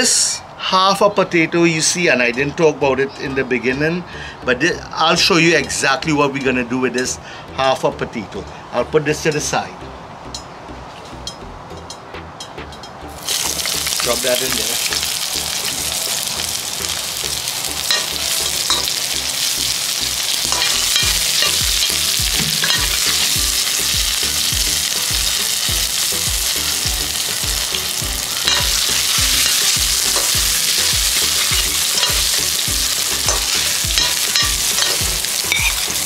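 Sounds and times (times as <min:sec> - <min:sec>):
vegetables sizzling in hot oil: 0:13.2 - 0:36.0
metal spoon scraping a wok: 0:20.2 - 0:26.7, 0:27.6 - 0:36.0.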